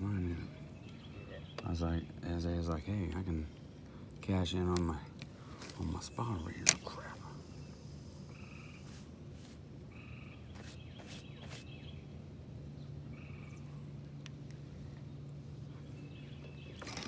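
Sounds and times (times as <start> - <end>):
faint low hum: 0.0 - 17.0
frogs calling: 5.8 - 9.0, 9.8 - 10.5, 13.1 - 13.7.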